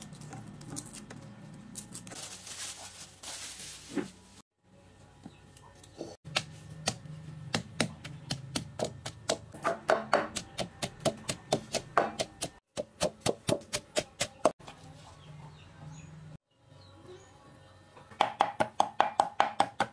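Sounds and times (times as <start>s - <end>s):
pestle pounding in mortar: 6.3s - 14.5s.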